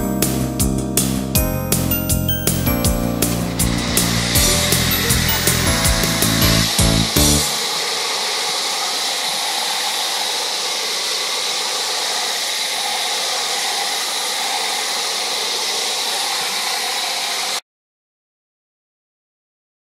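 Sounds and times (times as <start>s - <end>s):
floor grinder whirring: 3.2s - 17.6s.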